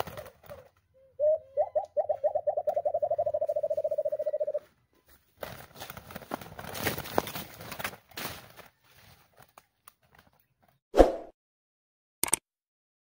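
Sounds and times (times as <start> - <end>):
wings flapping and rustling: 0.0 - 0.9, 2.6 - 10.8
dove hooting: 0.0 - 4.7.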